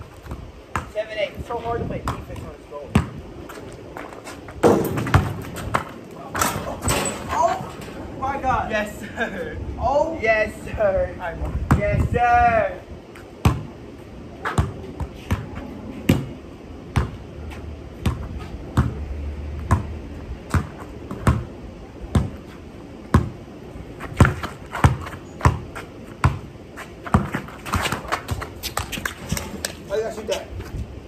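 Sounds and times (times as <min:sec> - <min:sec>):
basketball bouncing on concrete: 0:00.3 - 0:01.0, 0:02.0 - 0:03.2, 0:04.6 - 0:05.9, 0:13.4 - 0:13.7, 0:14.5 - 0:15.5, 0:16.1 - 0:16.3, 0:17.0 - 0:17.2, 0:18.0 - 0:19.0, 0:19.6 - 0:21.5, 0:22.1 - 0:22.4, 0:23.1 - 0:23.4, 0:24.1 - 0:29.8.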